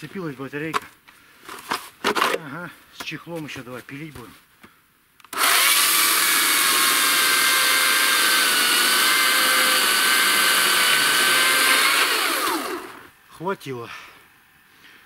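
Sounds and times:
electric chainsaw cutting log: 0:05.3 - 0:13.1.

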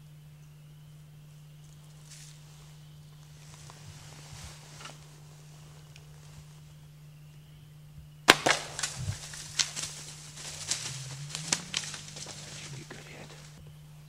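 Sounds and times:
bow shot crack: 0:08.3 - 0:13.4
animal crashing through dry brush: 0:08.3 - 0:13.6.

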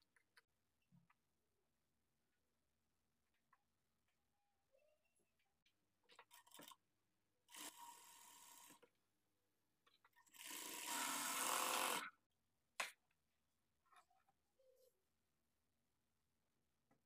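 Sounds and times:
sewing machine stitching: 0:07.5 - 0:08.8, 0:10.2 - 0:12.1.

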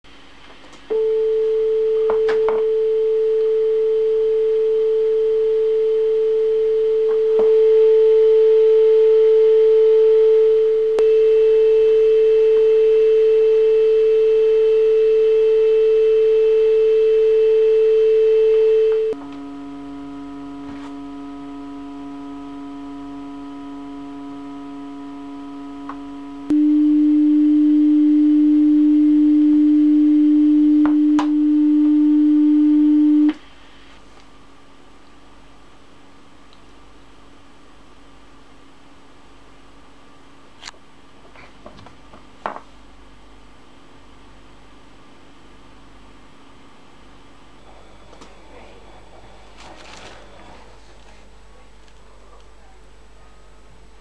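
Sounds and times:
chord of low steady tones: 0:00.9 - 0:33.4
sine wave test tone: 0:00.9 - 0:34.0.

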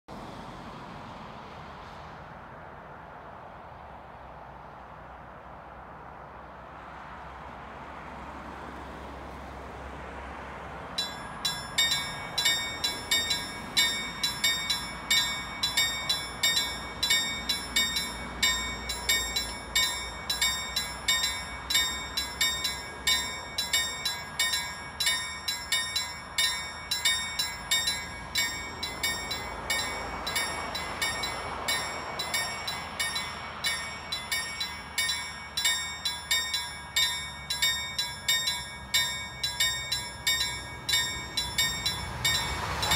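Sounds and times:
level-crossing bells clanging: 0:11.0 - 0:42.9.

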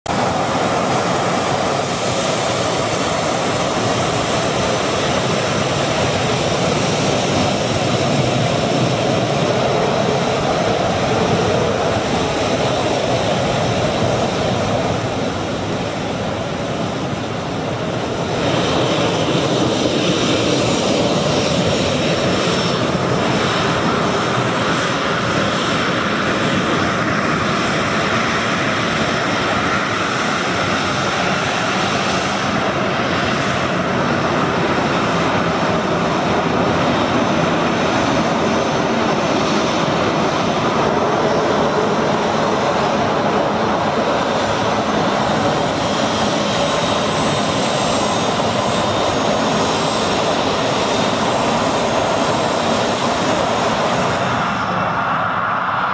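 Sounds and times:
jet engine whine: 0:00.0 - 0:55.9.

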